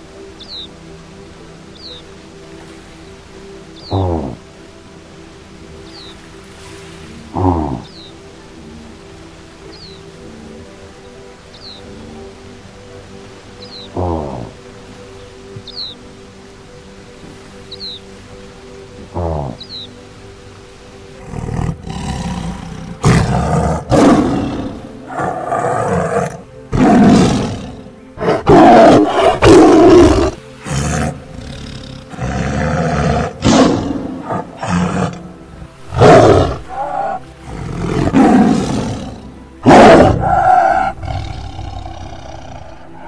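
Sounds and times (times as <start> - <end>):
tiger roaring: 21.2 - 43.0.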